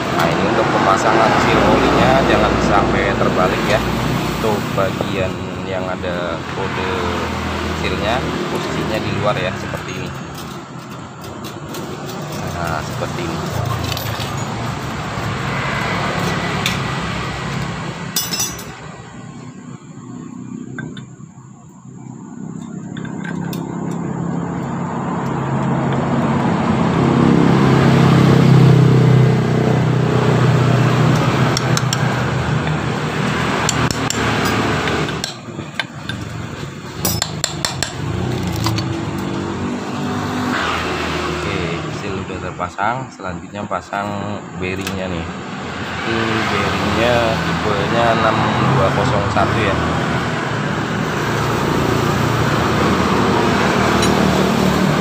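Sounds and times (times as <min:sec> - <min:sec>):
engine running: 0:00.0 - 0:42.6, 0:44.0 - 0:55.0
metal parts clinking on metal: 0:10.1 - 0:14.7, 0:18.2 - 0:18.8, 0:37.0 - 0:39.3.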